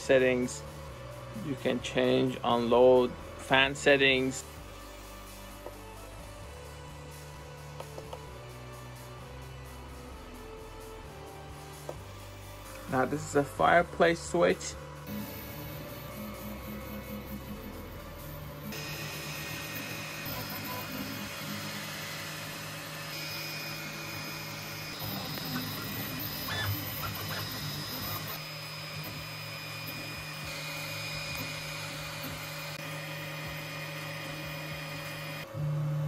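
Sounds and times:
printer fans and motors whirring: 15.0s - 36.0s.

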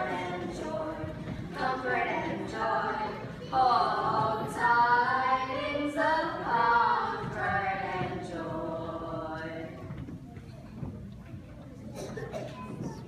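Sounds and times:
choir of young voices singing: 0.0s - 10.0s.

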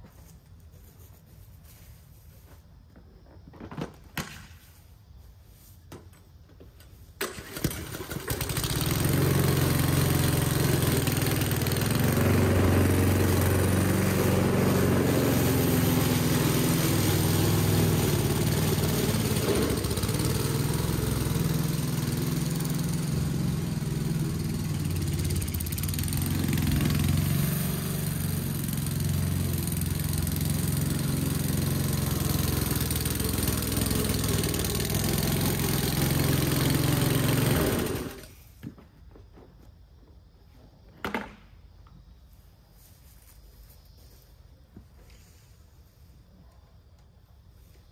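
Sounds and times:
lawn mower engine running: 5.5s - 38.8s.

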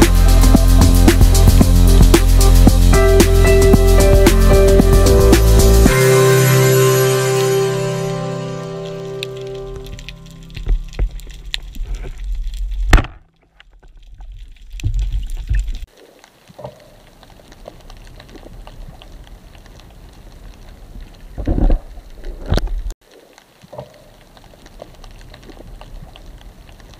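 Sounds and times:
background music: 0.0s - 11.3s.

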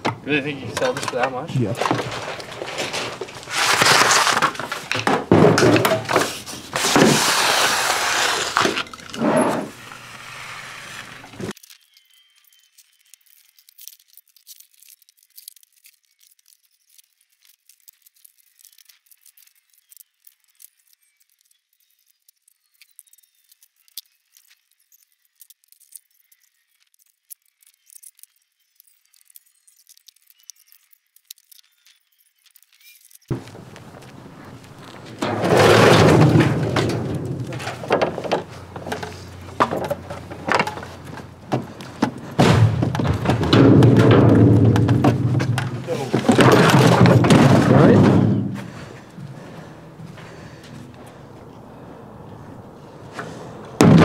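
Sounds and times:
junk crashing and clattering: 0.0s - 10.2s, 33.3s - 51.2s, 53.1s - 54.0s.

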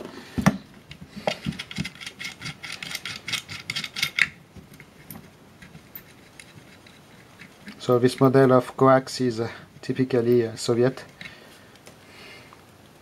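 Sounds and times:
metal nut scraping clicks: 1.2s - 8.4s, 11.0s - 11.4s.

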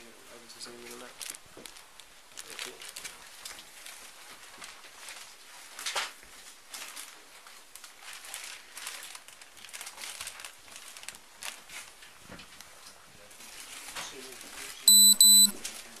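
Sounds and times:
plastic bags crinkling: 0.6s - 12.7s.

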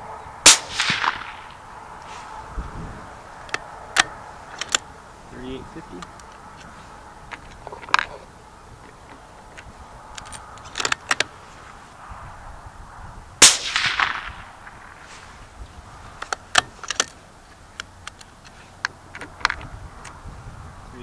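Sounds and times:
suppressed rifle shot: 0.4s - 1.6s, 13.4s - 15.1s
sharp clicks: 16.2s - 20.2s.

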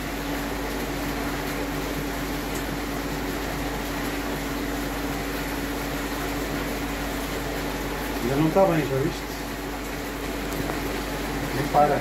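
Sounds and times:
machinery hum with hiss: 0.0s - 12.0s.

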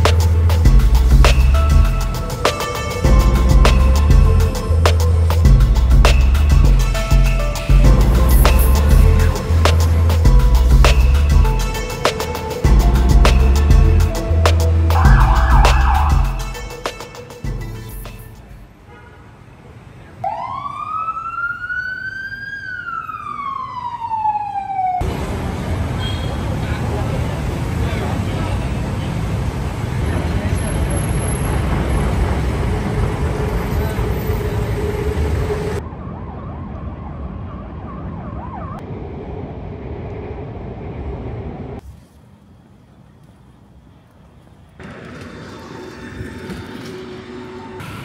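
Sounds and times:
city traffic noise: 0.0s - 48.0s
siren wailing: 14.9s - 16.6s, 20.2s - 25.0s, 32.8s - 38.9s.

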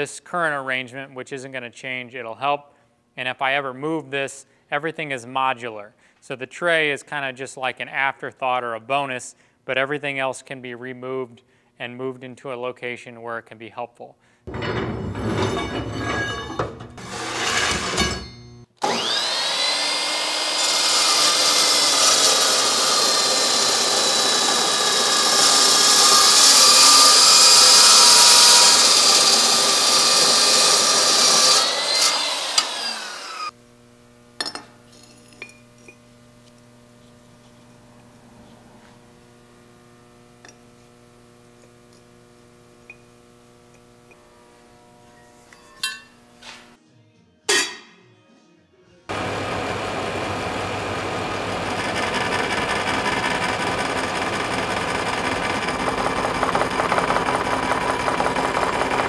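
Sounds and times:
chop saw cutting steel: 15.7s - 33.6s, 49.1s - 59.0s
saw blade high whine: 16.1s - 33.5s.

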